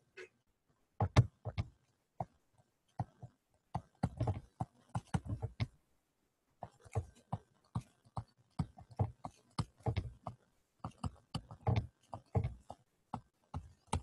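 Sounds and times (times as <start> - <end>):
stylus tapping on tablet: 6.6 - 14.0.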